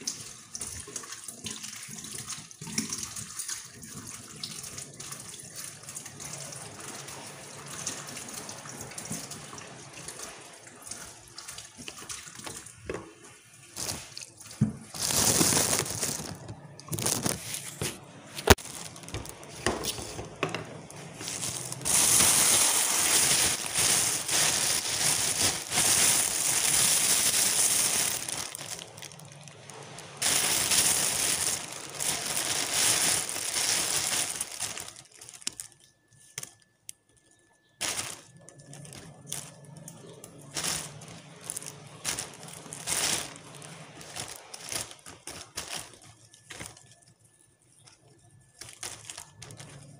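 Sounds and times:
tap water splashing: 0:07.7 - 0:15.0.

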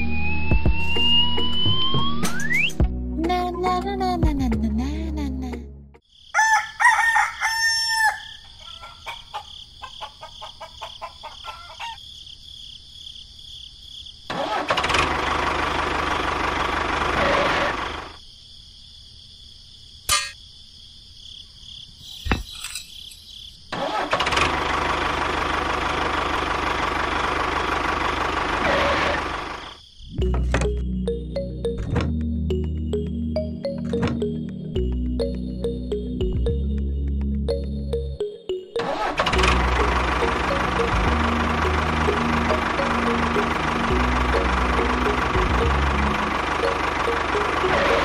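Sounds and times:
rooster crowing: 0:06.3 - 0:12.0
engine noise: 0:14.3 - 0:18.2, 0:23.7 - 0:31.2, 0:38.8 - 0:48.0.

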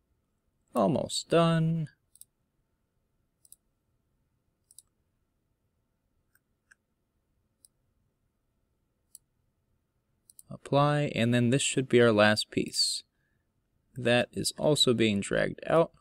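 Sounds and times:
faint computer mouse clicks: 0:04.6 - 0:05.0, 0:10.2 - 0:10.5.

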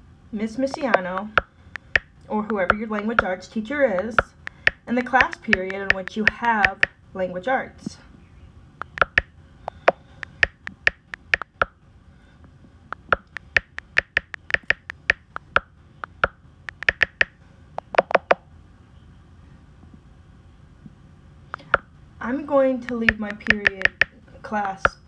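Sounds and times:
tapping on touchscreen keyboard: 0:00.7 - 0:03.3, 0:04.0 - 0:06.9, 0:08.8 - 0:11.7, 0:13.0 - 0:18.4, 0:22.9 - 0:25.0.

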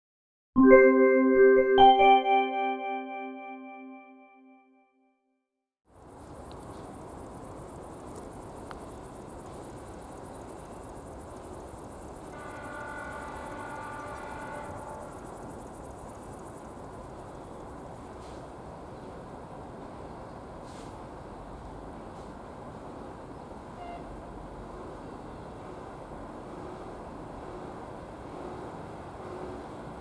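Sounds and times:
held pitched tone: 0:00.6 - 0:04.6
rumble and hiss of approaching train: 0:05.9 - 0:30.0.

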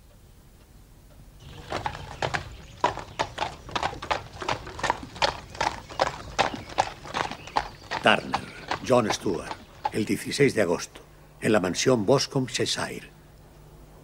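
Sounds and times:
horse hooves clip-clopping: 0:01.4 - 0:10.6.

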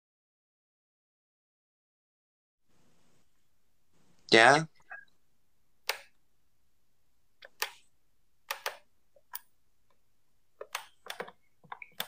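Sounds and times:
sharp short clicks: 0:05.8 - 0:06.2, 0:08.4 - 0:09.5.

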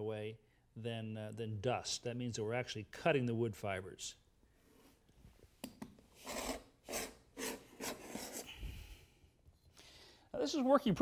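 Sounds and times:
paint scraper scraping wood floor: 0:06.2 - 0:08.5.

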